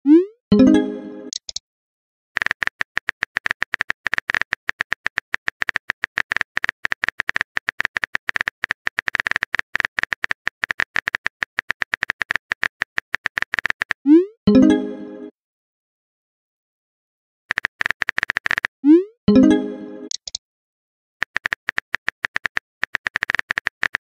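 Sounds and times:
phone keyboard typing taps: 2.4s - 14.0s, 17.5s - 18.7s, 21.2s - 24.0s.

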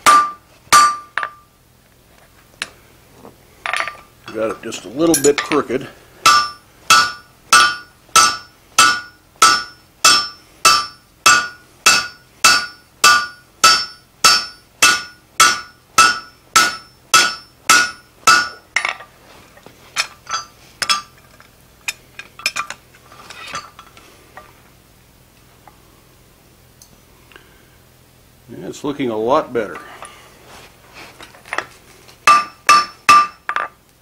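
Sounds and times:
hammer striking anvil ringing: 0.0s - 1.4s, 6.2s - 18.6s, 32.3s - 33.7s.

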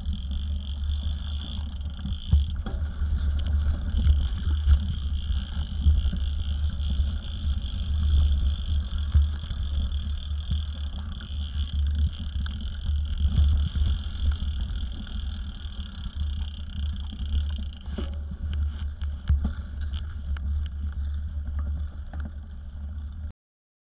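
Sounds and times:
bike rattles and knocks: 0.0s - 22.8s
wind and tyre rumble on dirt: 0.0s - 23.3s.

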